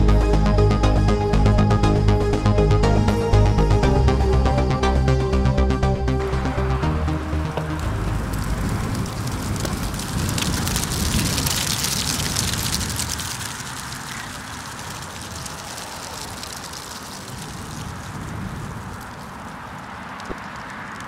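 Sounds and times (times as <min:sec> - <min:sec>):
wind rumbling on microphone: 0:06.1 - 0:21.0.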